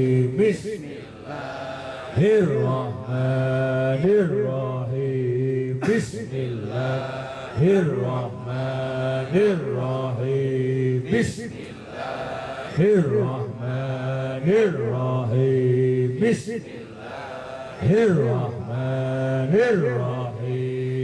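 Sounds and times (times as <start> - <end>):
man chanting into a microphone: 0.0 - 21.0.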